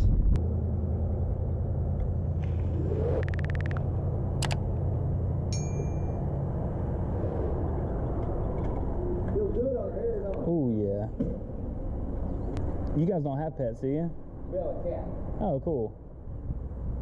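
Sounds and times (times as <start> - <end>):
low rumble of traffic: 0.0 - 17.0
clicks: 3.2 - 4.6
short bright ding: 5.5 - 6.2.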